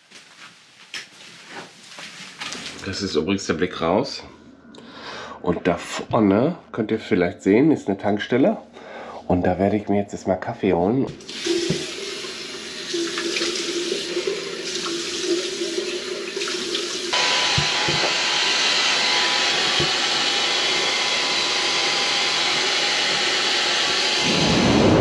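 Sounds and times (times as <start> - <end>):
tap water running into sink: 11.2 - 18.1
hair dryer hissing and whining: 17.1 - 25.0.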